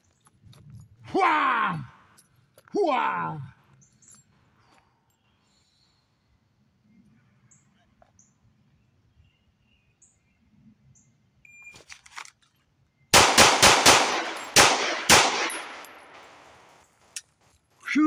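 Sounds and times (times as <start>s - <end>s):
pistol shots echoing: 13.1s - 16.8s.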